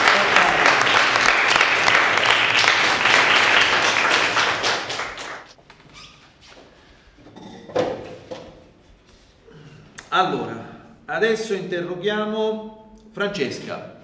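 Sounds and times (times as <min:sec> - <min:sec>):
small group applauding: 0:00.0 - 0:05.5.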